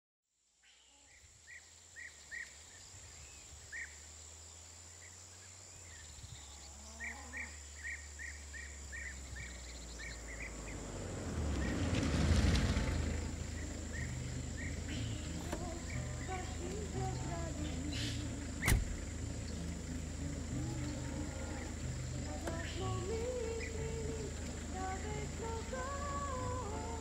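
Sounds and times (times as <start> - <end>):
bird chirping: 0.6 - 27.0
van engine rumble: 1.4 - 27.0.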